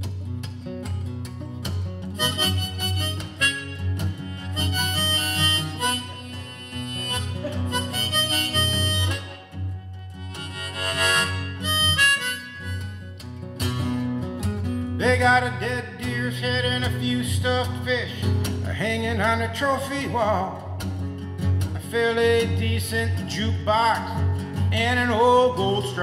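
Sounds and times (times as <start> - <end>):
strummed acoustic guitar: 0.0 - 26.0
harmonica playing: 2.1 - 13.3.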